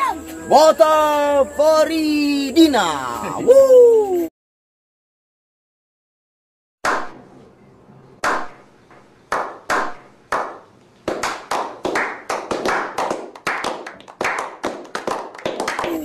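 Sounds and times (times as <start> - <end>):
group applause: 9.3 - 16.0.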